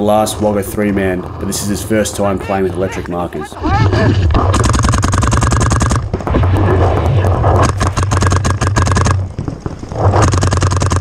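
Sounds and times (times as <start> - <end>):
paintball marker rapid firing: 4.1 - 11.0.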